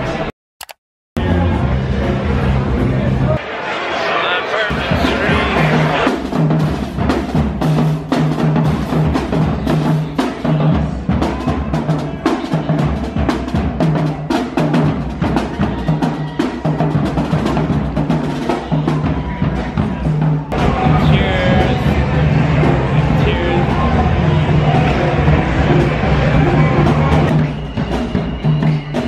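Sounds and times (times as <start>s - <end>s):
marching snare and bass drums: 4.7s - 29.0s.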